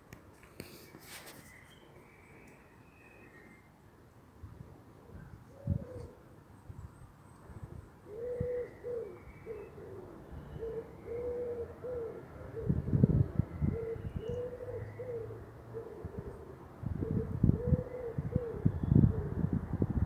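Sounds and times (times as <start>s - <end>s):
pigeon cooing: 5.0s - 6.2s, 8.0s - 19.5s.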